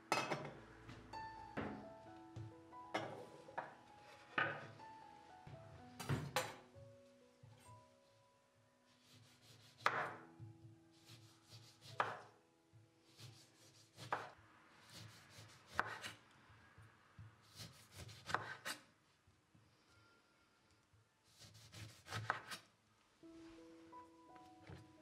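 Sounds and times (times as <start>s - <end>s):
knife slicing an orange: 9.0s - 10.2s, 11.0s - 12.3s, 13.2s - 14.3s, 14.9s - 16.2s, 17.4s - 18.9s, 21.3s - 22.7s.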